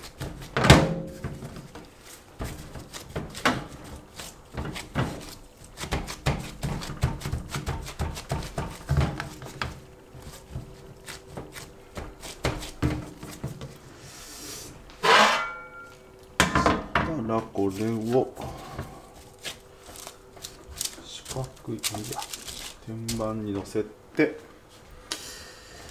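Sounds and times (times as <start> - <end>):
hands tapping bread dough: 1.4 - 13.8.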